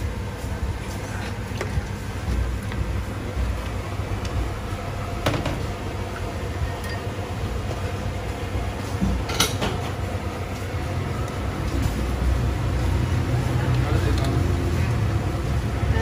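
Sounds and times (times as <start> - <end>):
low background rumble: 0.0 - 9.3.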